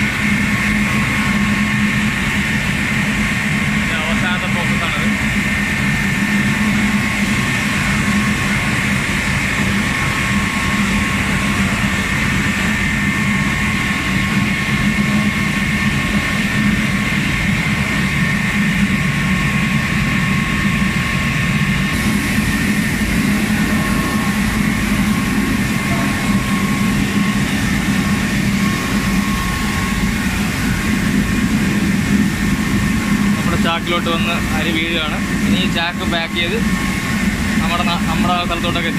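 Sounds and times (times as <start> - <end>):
machinery high whine: 0.0 - 38.9
mill machinery low drone: 0.0 - 38.9.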